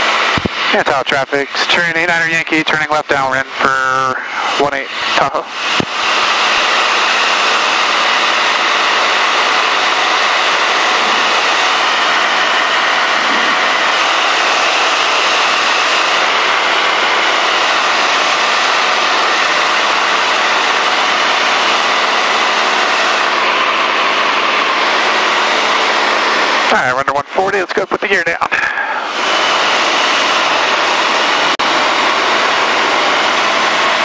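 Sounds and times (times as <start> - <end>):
rushing air: 0.0 - 0.9, 4.1 - 22.0
light aircraft engine drone: 0.0 - 34.0.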